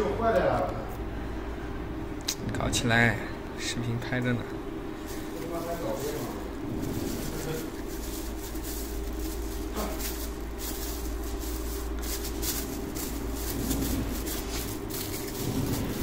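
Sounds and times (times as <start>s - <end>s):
low machine hum: 0.0s - 16.0s
plastic bags crinkling: 4.9s - 16.0s.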